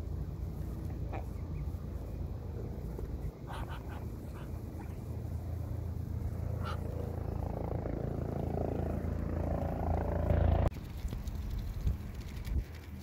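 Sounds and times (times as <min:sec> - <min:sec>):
steady low rumble: 0:00.0 - 0:13.0
duckling peeping: 0:03.4 - 0:05.0, 0:06.6 - 0:07.0.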